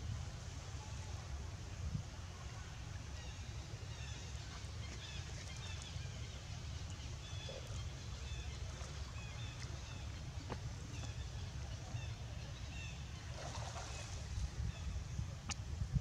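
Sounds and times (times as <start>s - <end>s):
wind rumble on microphone: 0.0s - 16.0s.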